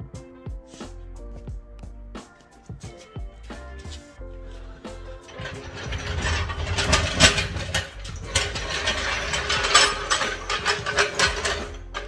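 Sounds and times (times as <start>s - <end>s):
floor jack clicking and clanking: 5.2s - 12.0s.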